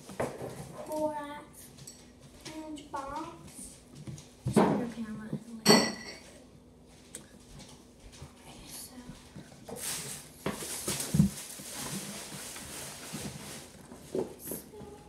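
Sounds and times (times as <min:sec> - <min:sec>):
cardboard box rustling: 0:09.8 - 0:14.8.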